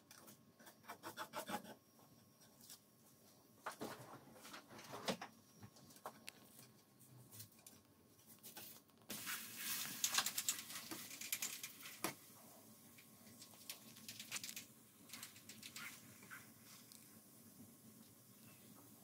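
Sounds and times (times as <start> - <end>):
pancake batter sizzling: 9.1 - 19.0.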